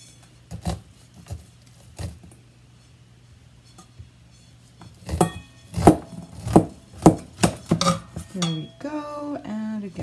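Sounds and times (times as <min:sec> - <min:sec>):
knife cutting corn: 0:00.0 - 0:02.4.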